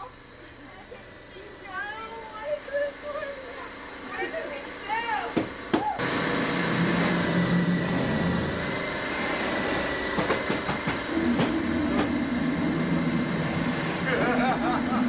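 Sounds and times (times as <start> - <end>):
faint high whine: 0.0 - 15.0
mechanical rumble and hiss: 0.0 - 15.0.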